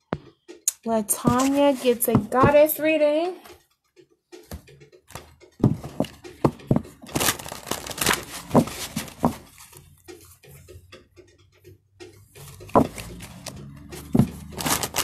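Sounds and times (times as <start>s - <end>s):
cards shuffled by hand: 6.7s - 9.7s, 12.7s - 15.0s.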